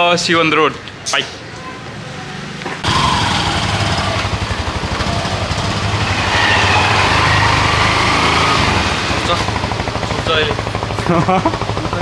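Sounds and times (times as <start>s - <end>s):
motorcycle engine running: 2.8s - 12.0s.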